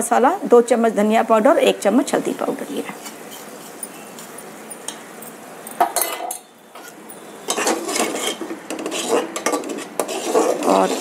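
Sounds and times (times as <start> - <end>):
metal utensils clinking and scraping: 3.0 - 11.0
paste sizzling in oil: 6.8 - 11.0.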